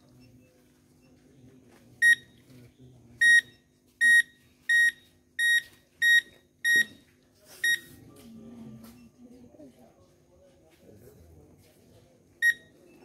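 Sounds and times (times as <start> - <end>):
metal detector short high beeps: 3.2 - 6.9.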